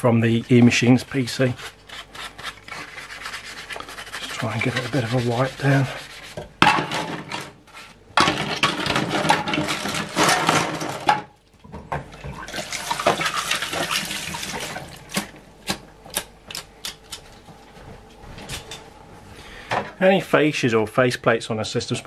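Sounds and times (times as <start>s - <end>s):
scrubbing plastic parts: 0.4s - 6.5s
water sloshing in sink: 12.0s - 15.3s.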